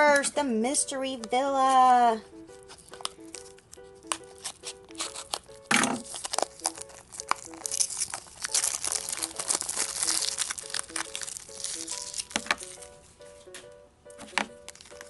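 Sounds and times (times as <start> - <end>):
light background music: 0.0 - 15.0
plastic wrapping crinkling and tearing: 2.5 - 13.0, 14.6 - 15.0.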